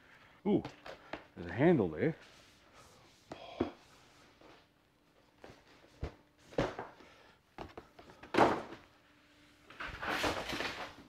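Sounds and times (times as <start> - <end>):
cardboard rustling scrape: 9.8 - 11.0.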